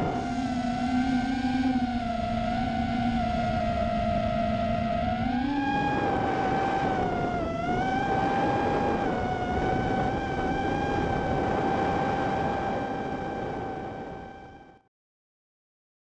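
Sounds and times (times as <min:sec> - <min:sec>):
drone motors whining: 0:00.0 - 0:14.8
propeller wash and wind: 0:05.4 - 0:14.5.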